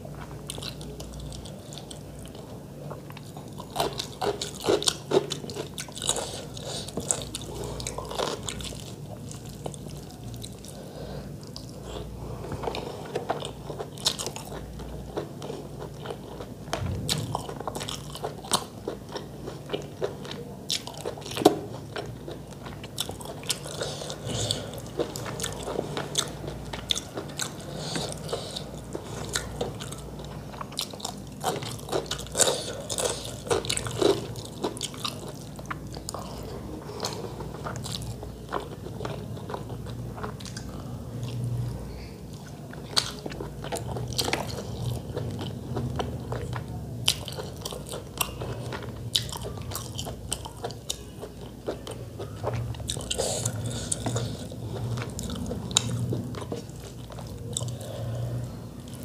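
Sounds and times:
wet chewing: 0:42.3 - 0:59.0.

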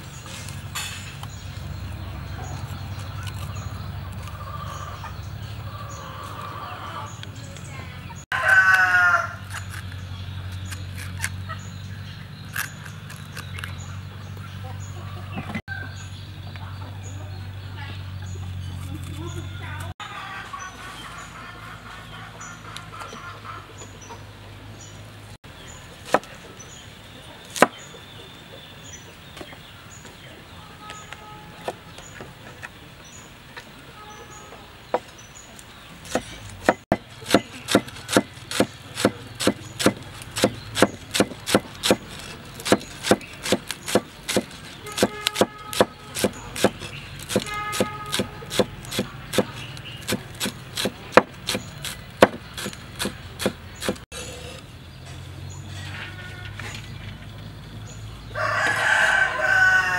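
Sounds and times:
cleaver chopping on wooden board: 0:36.0 - 0:54.0.

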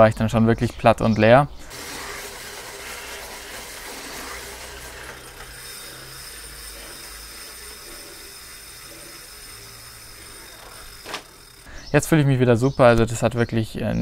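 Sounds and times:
bike trainer mechanical whirr: 0:01.6 - 0:12.0.

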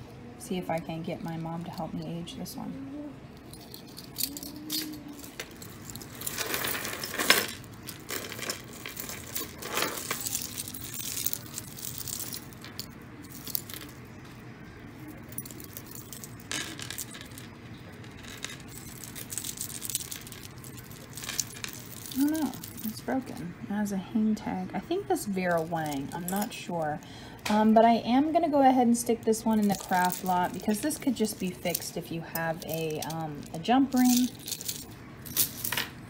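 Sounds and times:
jewelry chains jangling: 0:03.4 - 0:14.0, 0:15.0 - 0:23.4, 0:25.4 - 0:26.6, 0:29.4 - 0:35.9.

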